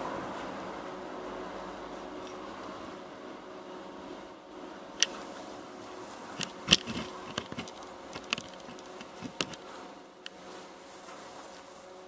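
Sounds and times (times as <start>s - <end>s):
faint steady hum: 0.0s - 12.0s
camera handling clicks and knocks: 6.4s - 9.6s.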